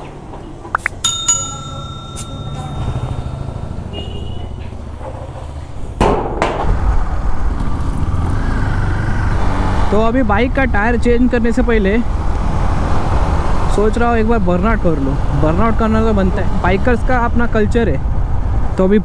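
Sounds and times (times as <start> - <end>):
sharp metal clinks: 0.8 - 4.0
motorcycle engine running: 1.1 - 5.6.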